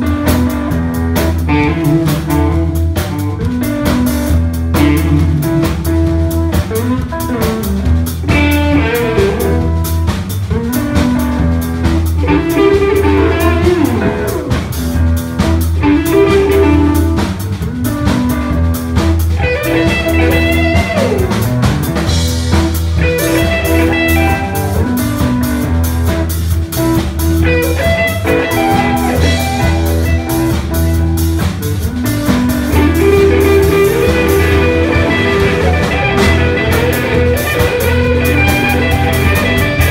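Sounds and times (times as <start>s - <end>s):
drum kit: 0.0s - 39.9s
electric bass: 0.0s - 39.9s
electric guitar lead lines: 0.0s - 39.9s.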